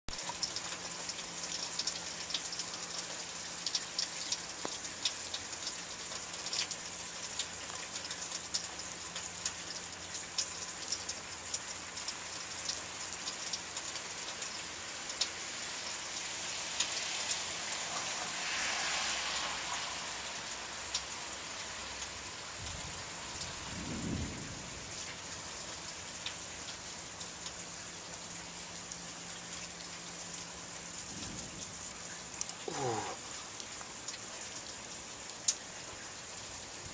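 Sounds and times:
drips ticking on surfaces: 0:00.1 - 0:23.6, 0:24.9 - 0:36.8
steady rain falling: 0:00.1 - 0:36.9
low rumble of thunder: 0:22.6 - 0:25.1, 0:31.0 - 0:32.0.

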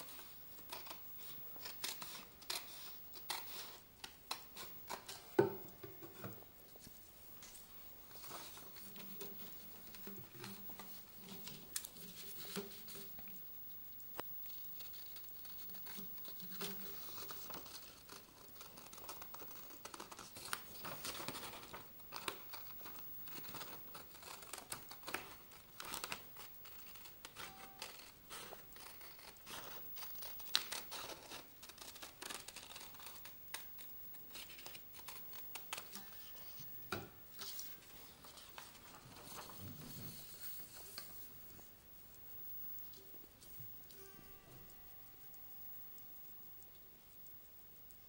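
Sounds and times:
scissors snipping paper: 0:00.0 - 0:05.4, 0:14.6 - 0:36.5
paper crackling and rustling: 0:06.2 - 0:13.4, 0:14.1 - 0:36.7, 0:37.3 - 0:41.8.

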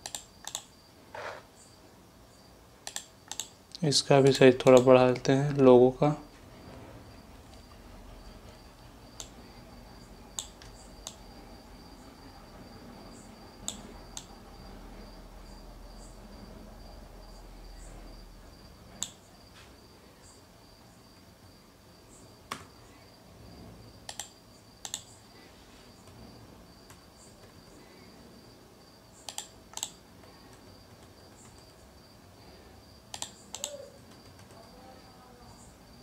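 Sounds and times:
computer mouse clicks: 0:00.0 - 0:00.7, 0:02.8 - 0:03.6, 0:09.2 - 0:09.4, 0:10.4 - 0:11.2, 0:13.6 - 0:14.3, 0:19.0 - 0:19.2, 0:24.0 - 0:25.2, 0:29.2 - 0:31.7, 0:33.1 - 0:34.6.

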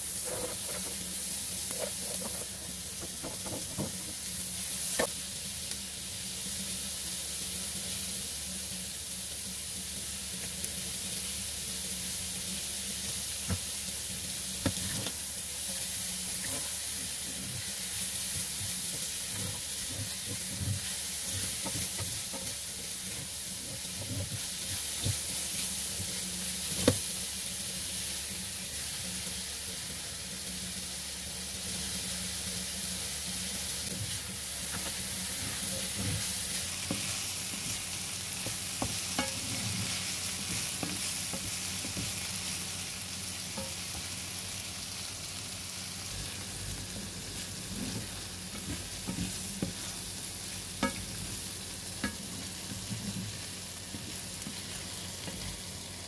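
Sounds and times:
food sizzling in a wok: 0:00.0 - 0:56.0
spatula scraping and tapping pan: 0:00.1 - 0:04.3, 0:18.3 - 0:27.0, 0:33.9 - 0:37.8, 0:38.4 - 0:42.2, 0:47.6 - 0:50.1, 0:50.8 - 0:51.3, 0:52.0 - 0:55.6.

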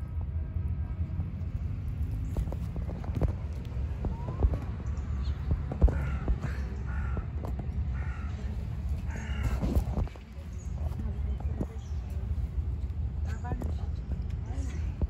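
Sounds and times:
steady low rumble: 0:00.0 - 0:15.0
crow cawing: 0:05.8 - 0:10.1.

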